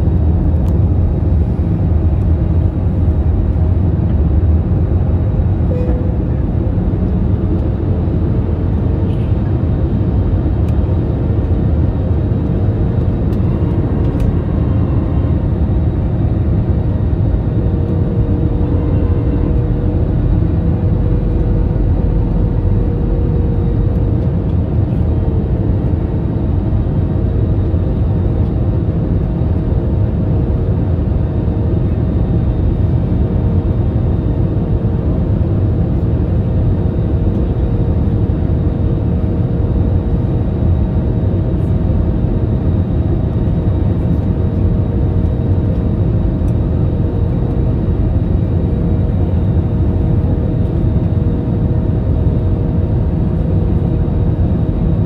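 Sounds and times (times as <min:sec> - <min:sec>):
engine and airflow rumble: 0:00.0 - 0:55.0
faint whining tones: 0:05.6 - 0:06.8.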